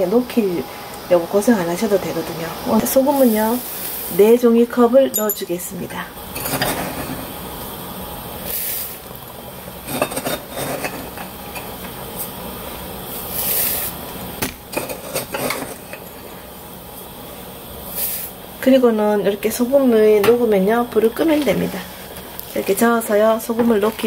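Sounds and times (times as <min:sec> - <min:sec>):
pot boiling and bubbling: 0:00.0 - 0:24.0
salt pouring hiss: 0:03.0 - 0:04.4, 0:08.3 - 0:09.2, 0:12.1 - 0:14.4, 0:16.3 - 0:18.6.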